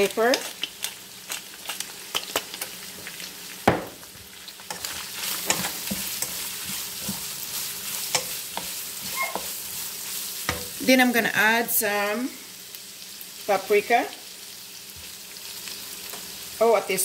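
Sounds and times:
meat and onions sizzling in a pan: 0.0 - 17.0
spatula scraping a pan: 4.6 - 10.8.

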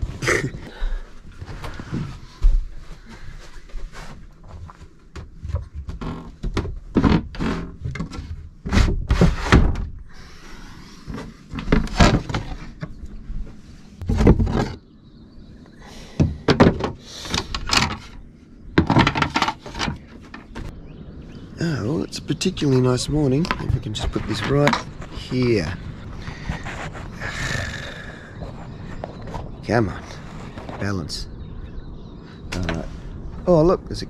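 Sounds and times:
boat hatch boards knocking and scraping: 5.1 - 10.0, 11.0 - 13.0, 14.0 - 14.8, 16.2 - 18.2, 18.8 - 20.7.

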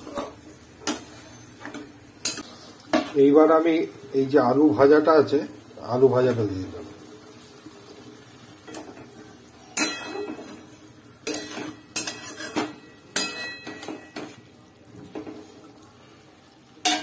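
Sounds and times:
spatula scraping metal wok: 0.0 - 1.5, 9.8 - 13.6.

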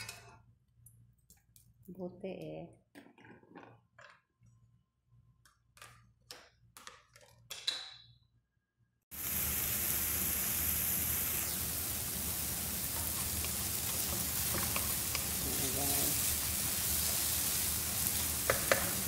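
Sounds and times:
vegetables sizzling in hot oil: 9.1 - 19.0.

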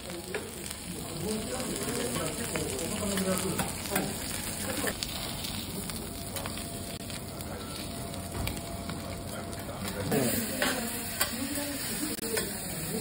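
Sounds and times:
shrimp sizzling on a griddle: 0.0 - 13.0.

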